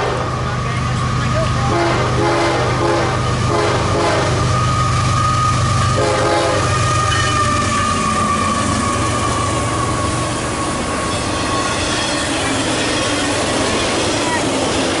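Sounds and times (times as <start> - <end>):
locomotive engine running: 0.0 - 15.0
train horn blasts: 1.7 - 4.6, 5.9 - 10.0
high wheel squeal: 4.2 - 15.0.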